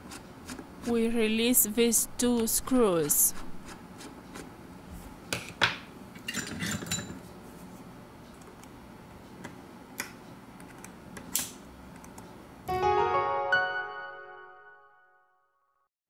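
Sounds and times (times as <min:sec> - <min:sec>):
piano music: 0:12.7 - 0:15.5.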